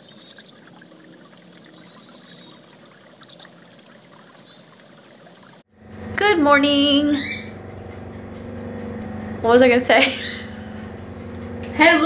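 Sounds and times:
songbirds chirping: 0:00.0 - 0:05.7.

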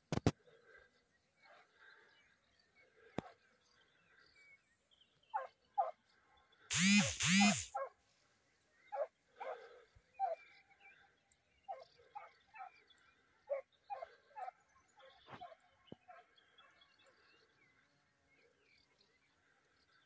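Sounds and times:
distant dogs barking: 0:05.3 - 0:06.1, 0:08.9 - 0:10.6, 0:11.6 - 0:17.3.

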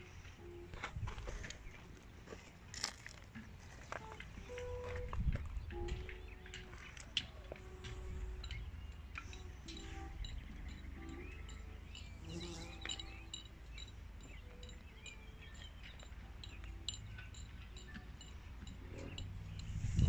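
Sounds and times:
wind rumble on microphone: 0:00.9 - 0:01.7, 0:04.4 - 0:06.4, 0:17.9 - 0:20.0
high bird chirps: 0:08.4 - 0:20.0.

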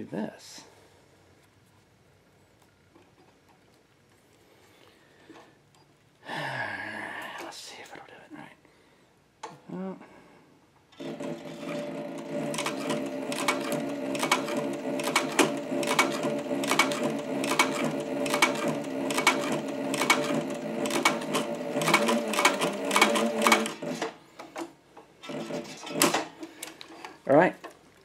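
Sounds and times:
sewing machine motor humming: 0:11.0 - 0:24.2, 0:25.2 - 0:26.7.

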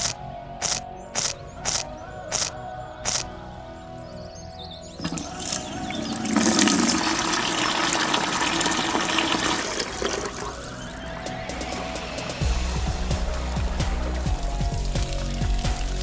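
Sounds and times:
water pouring and splashing: 0:05.0 - 0:12.1, 0:13.2 - 0:16.0.

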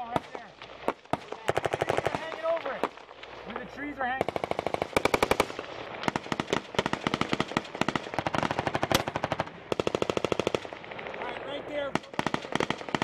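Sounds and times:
automatic gunfire bursts: 0:00.0 - 0:02.4, 0:04.2 - 0:10.8, 0:11.9 - 0:13.0.

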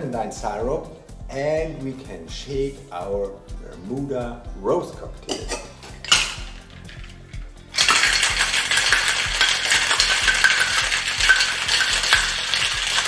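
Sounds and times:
ice rattling in cocktail shaker: 0:05.4 - 0:13.0.

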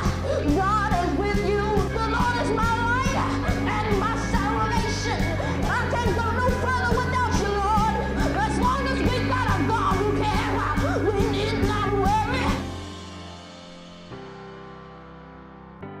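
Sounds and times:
boy singing gospel-style: 0:00.0 - 0:12.6
band with bass and drums: 0:00.0 - 0:14.4.

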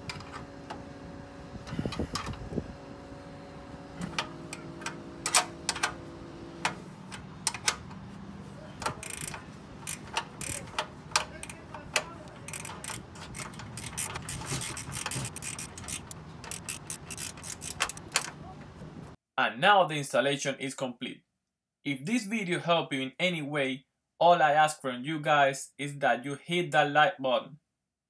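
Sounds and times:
socket ratchet clicking: 0:08.8 - 0:18.3.

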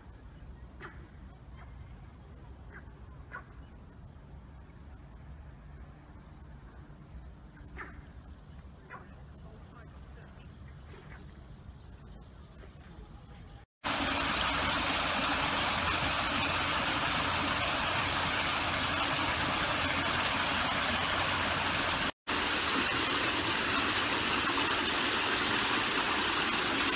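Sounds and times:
stream cascading over rocks: 0:13.8 - 0:26.9.

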